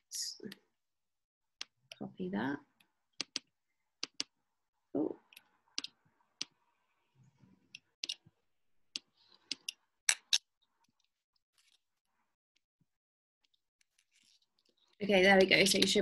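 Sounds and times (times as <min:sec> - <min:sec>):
computer mouse clicking: 0:03.2 - 0:04.4.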